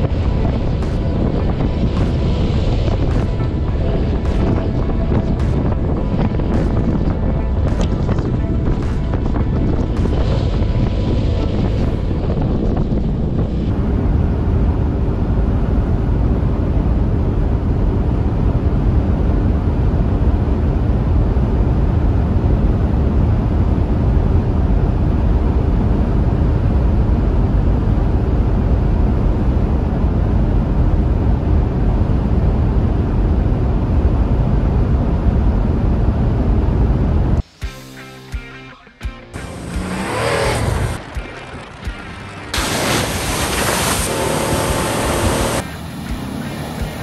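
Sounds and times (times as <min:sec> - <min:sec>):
faint engine hum: 0:00.0 - 0:37.5
road and wind noise: 0:00.0 - 0:47.0.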